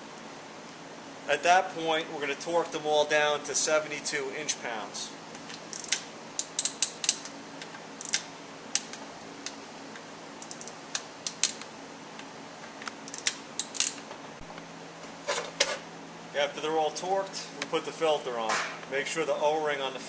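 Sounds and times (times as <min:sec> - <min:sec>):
torque wrench ratcheting: 0:05.6 - 0:07.3, 0:08.0 - 0:08.2, 0:10.4 - 0:11.6, 0:13.0 - 0:14.0.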